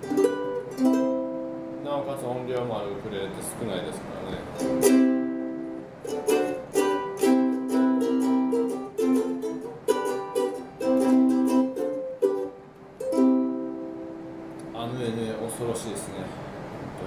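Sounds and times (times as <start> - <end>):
ukulele strummed chords: 0.0 - 2.8, 4.4 - 15.1.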